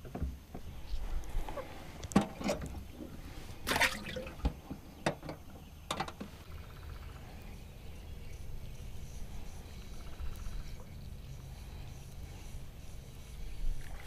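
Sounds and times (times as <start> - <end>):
water splashing and dripping: 3.6 - 4.6.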